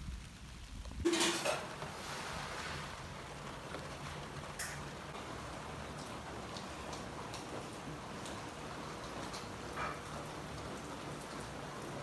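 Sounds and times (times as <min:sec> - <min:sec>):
steady rain hiss: 0:00.0 - 0:12.0.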